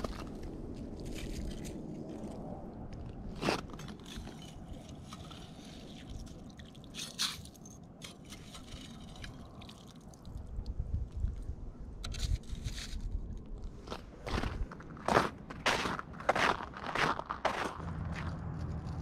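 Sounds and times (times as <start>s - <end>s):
boots crunching on snowy ice: 13.8s - 19.0s.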